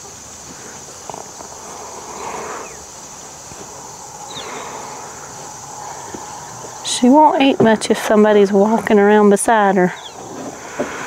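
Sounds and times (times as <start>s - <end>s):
faint rustles: 0.0s - 8.1s
crickets chorus: 0.0s - 11.0s.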